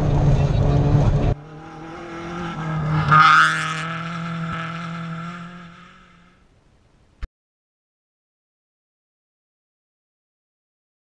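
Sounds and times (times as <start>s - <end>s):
rally car engine at high revs: 0.0s - 6.4s
gravel and tyre noise: 0.0s - 7.3s.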